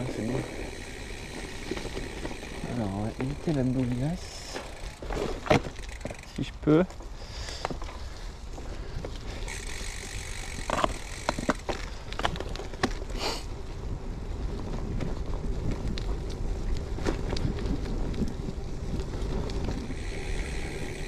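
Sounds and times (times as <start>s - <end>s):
bike knocks and rattles: 0.0s - 7.0s, 9.0s - 13.1s, 16.9s - 21.0s
bike tyres rumbling on dirt: 0.0s - 21.0s.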